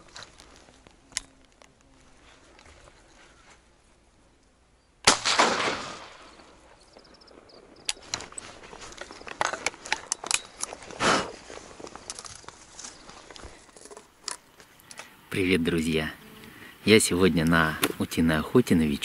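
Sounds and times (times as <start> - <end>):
short rustle: 0.0 - 4.1, 8.0 - 15.2
shotgun shot: 5.0 - 6.5.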